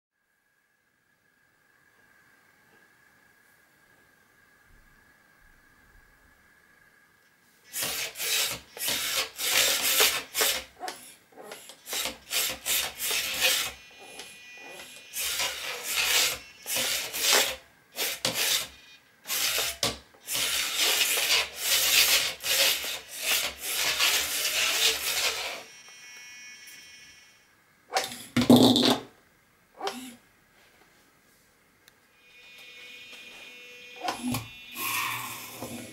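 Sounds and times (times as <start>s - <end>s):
thin high-pitched whine: 0.2s - 28.3s, 32.1s - 35.9s
small gear motors whirring: 7.7s - 27.4s, 29.8s - 30.2s, 32.2s - 35.9s.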